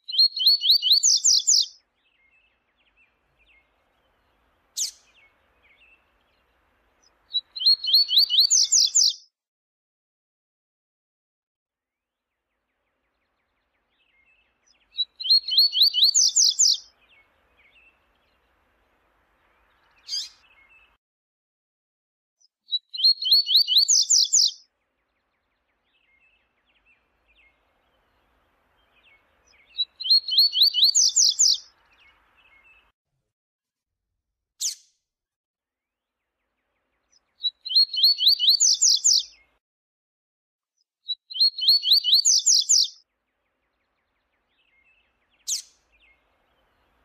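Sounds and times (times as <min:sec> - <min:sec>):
bird singing rapid rising notes: 0:00.1 - 0:09.2, 0:12.9 - 0:21.0, 0:22.7 - 0:32.9, 0:36.5 - 0:39.5, 0:41.3 - 0:47.0.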